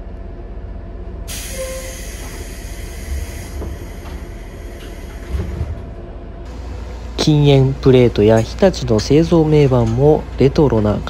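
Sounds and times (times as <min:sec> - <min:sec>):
compressed air hiss: 0:01.3 - 0:05.4
train doors thumping: 0:01.3 - 0:10.9.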